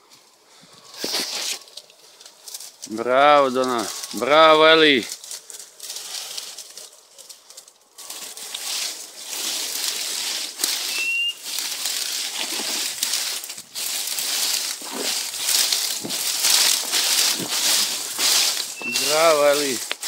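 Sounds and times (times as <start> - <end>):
brush and dry leaves crackling: 0.0 - 20.0
short high chirp: 10.8 - 11.4, 18.7 - 19.4.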